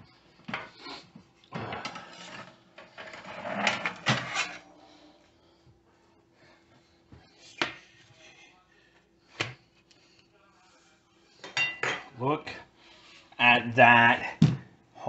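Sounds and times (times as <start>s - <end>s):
kitchen pans and utensils clattering: 1.5s - 4.7s, 11.4s - 12.2s.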